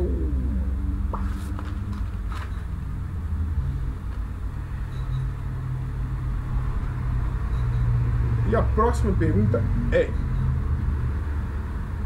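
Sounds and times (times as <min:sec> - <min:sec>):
motor vehicle rumble: 0:00.0 - 0:12.0.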